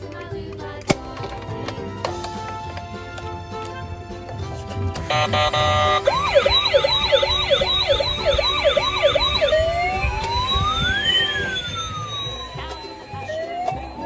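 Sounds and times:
toy electronic siren: 0:05.1 - 0:14.0.

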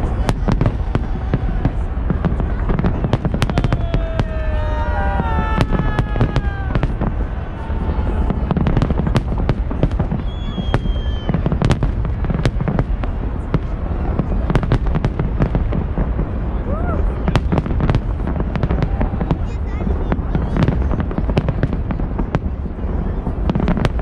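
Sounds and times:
fireworks bangs and crackles: 0:00.0 - 0:24.0
firework whistles sliding down: 0:10.2 - 0:11.5.

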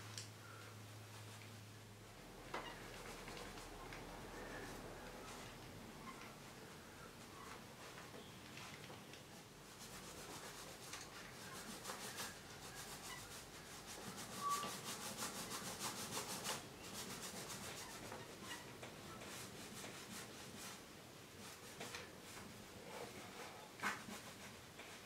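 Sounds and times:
sponge roller rubbing on canvas: 0:09.7 - 0:18.6, 0:19.2 - 0:20.8.

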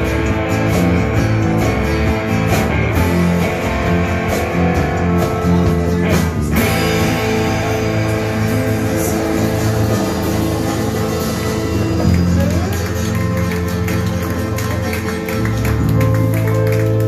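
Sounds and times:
acoustic guitar: 0:00.0 - 0:17.0
bass guitar: 0:00.0 - 0:17.0
drums: 0:00.0 - 0:17.0
electric guitar: 0:00.0 - 0:17.0.

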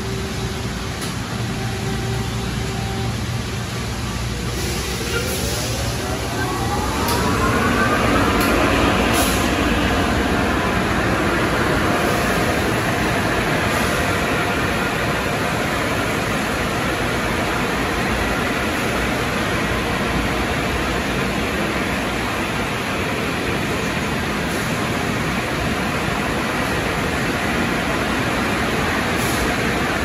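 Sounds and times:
car wash equipment rushing: 0:00.0 - 0:30.0
motor whine rising: 0:05.4 - 0:13.0.

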